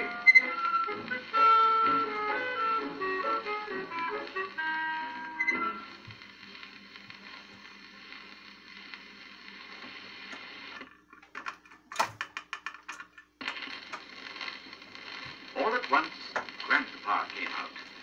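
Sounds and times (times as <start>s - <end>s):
record surface hiss: 0.0s - 18.0s
record changer clicks and clunks: 9.8s - 15.3s, 16.2s - 18.0s.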